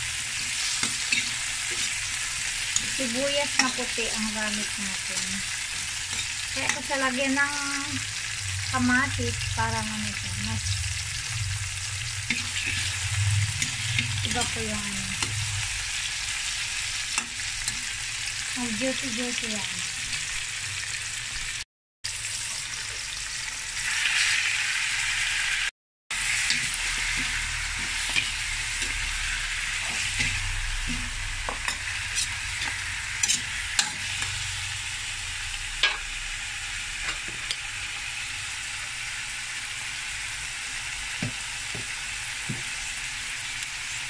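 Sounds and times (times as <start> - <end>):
spatula scraping a wok: 0.0 - 7.1, 11.8 - 18.0, 26.2 - 34.7
vegetables sizzling in oil: 0.0 - 44.0.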